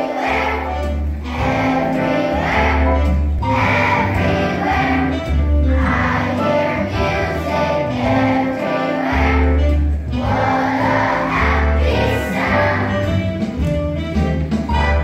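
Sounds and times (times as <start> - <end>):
children's choir singing: 0.0 - 13.4
instrumental accompaniment: 0.0 - 15.0.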